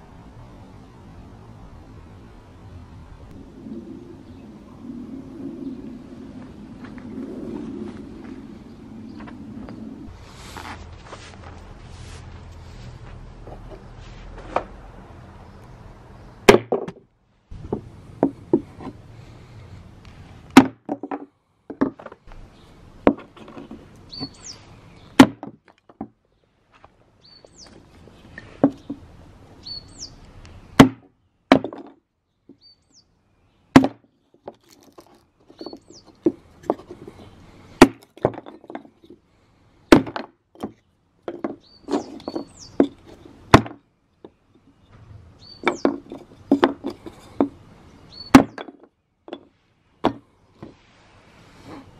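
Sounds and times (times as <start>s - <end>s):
bird chirping: 3.6s - 6.2s, 8.5s - 10.1s, 23.8s - 26.6s, 27.2s - 31.5s, 32.2s - 34.4s, 35.2s - 36.5s, 40.7s - 46.1s, 47.2s - 50.4s
wood pieces knocking: 16.4s - 19.0s, 20.5s - 22.4s, 23.0s - 24.3s, 25.1s - 26.2s, 30.8s - 32.0s, 33.7s - 37.2s, 37.8s - 39.2s, 39.9s - 44.4s, 45.0s - 47.6s, 48.3s - 50.8s
hatchet chopping wood: 16.5s - 17.0s, 20.5s - 21.2s, 25.2s - 25.6s, 30.8s - 32.0s, 33.7s - 34.1s, 37.8s - 38.5s, 39.9s - 40.8s, 43.5s - 43.8s, 48.3s - 48.8s.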